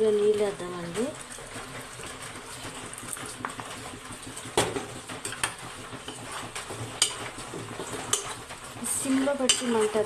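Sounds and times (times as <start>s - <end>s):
metal spoon stirring wet mixture: 0.0s - 10.0s
spoon clinking against steel pot: 9.4s - 10.0s.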